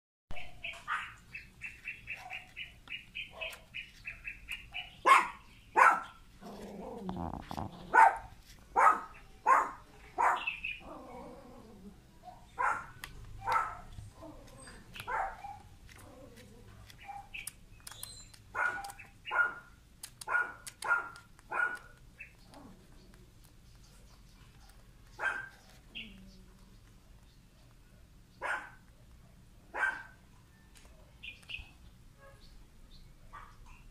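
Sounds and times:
puppy yelping: 0.4 - 11.8, 12.6 - 17.4, 18.0 - 22.9, 24.6 - 26.3
puppy groaning: 6.4 - 8.2, 10.8 - 12.1.

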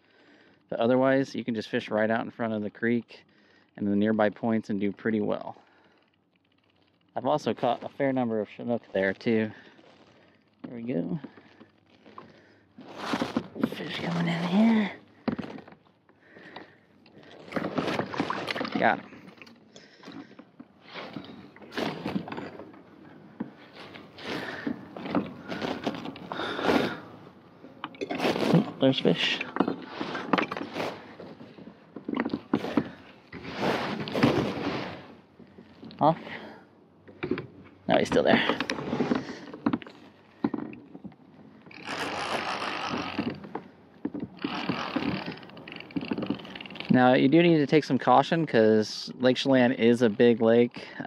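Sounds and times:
fishing line handling knocks and scrapes: 9.2 - 14.0, 15.3 - 36.1
fishing reel whirring: 41.7 - 43.4, 44.4 - 46.9.

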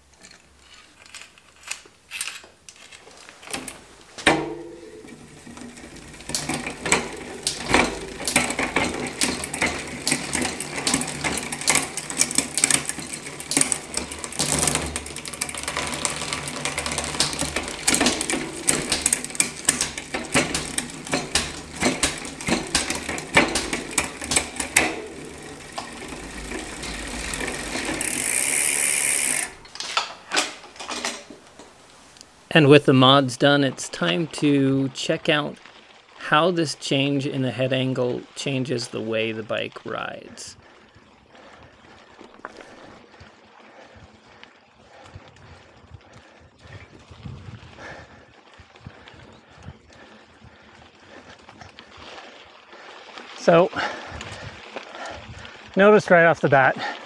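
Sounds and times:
bicycle chain whirring and clicking: 2.7 - 31.3, 40.6 - 55.8.

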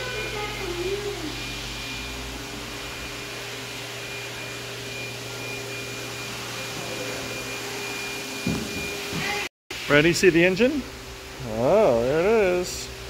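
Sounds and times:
indoor hum and hiss: 8.4 - 13.0.

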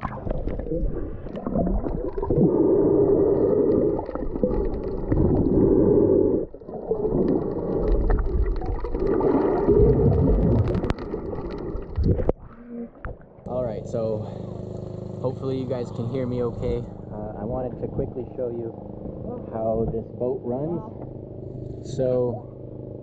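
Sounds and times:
underwater bubbling: 0.0 - 22.0
muffled underwater rushing water: 0.0 - 22.2.

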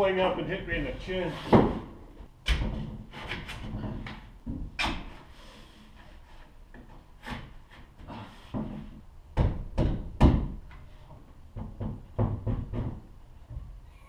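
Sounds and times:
knocks and thumps on camper door: 9.3 - 10.6, 11.6 - 13.1.

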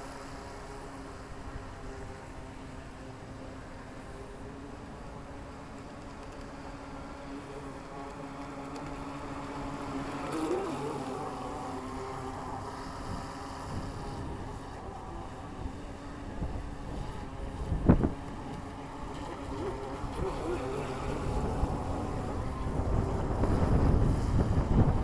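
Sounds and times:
electric boat motor whine: 0.0 - 25.0
wind on microphone: 10.3 - 25.0.

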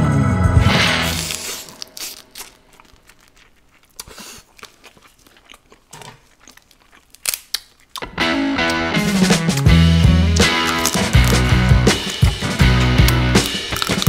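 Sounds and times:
shells cracking: 1.0 - 3.6, 7.0 - 7.8, 10.3 - 14.0
wet chewing: 1.0 - 14.0
meat being pulled apart: 1.1 - 8.0, 10.4 - 12.3, 13.0 - 14.0.

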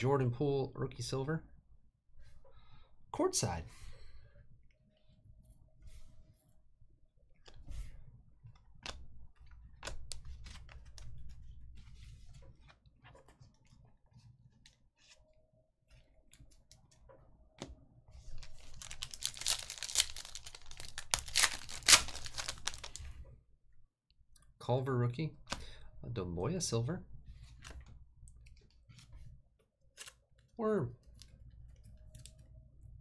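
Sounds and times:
foil wrapper tearing: 18.4 - 23.0.

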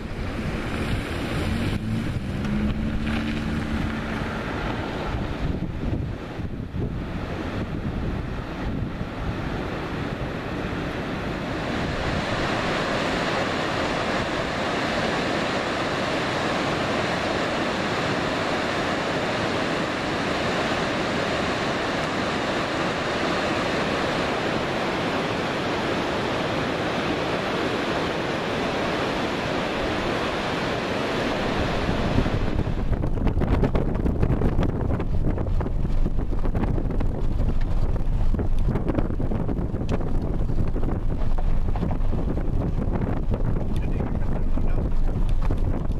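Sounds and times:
rushing flowing water: 0.0 - 33.6
wind rumble on microphone: 0.0 - 45.9.

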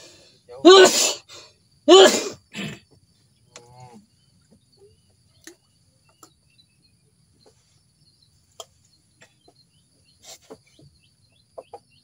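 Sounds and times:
man shouting: 0.5 - 1.2, 1.9 - 2.4
faint clicks: 3.5 - 3.8.

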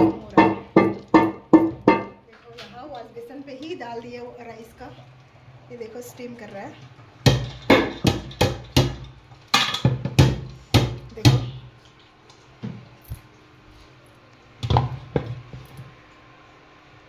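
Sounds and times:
knocks on steel cookware: 0.0 - 2.2, 7.2 - 11.6.

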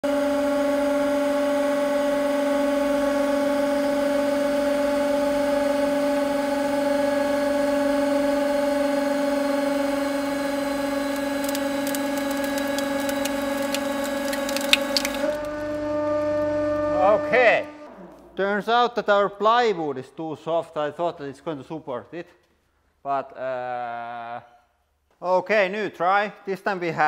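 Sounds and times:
hydraulic pump whining: 7.8 - 17.9
sharp cracks and crackles: 11.0 - 15.5.

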